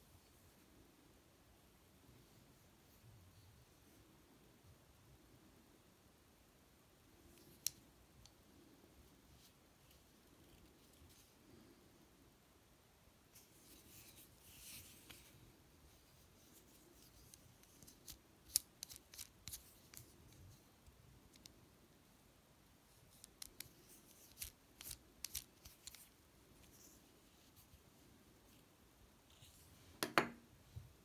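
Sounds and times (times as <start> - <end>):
soft handling rustle: 13.3 - 21.5, 22.9 - 30.0
pen twist mechanism clicking: 18.0 - 19.6.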